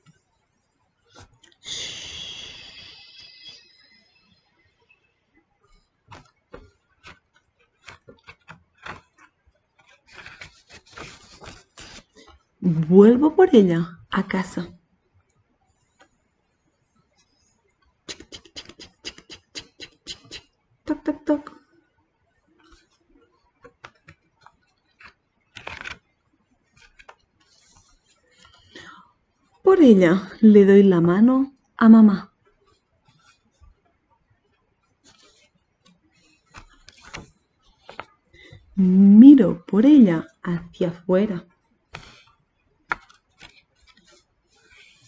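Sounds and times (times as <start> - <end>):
page turning: 6.1 - 12.4, 23.6 - 26.0, 26.7 - 28.6, 35.1 - 35.5, 36.2 - 38.1, 41.9 - 42.3, 42.9 - 45.0
paper rustling: 6.1 - 12.4, 23.6 - 26.0, 26.7 - 28.8, 35.0 - 35.5, 36.2 - 38.6, 41.9 - 42.3, 42.9 - 45.0.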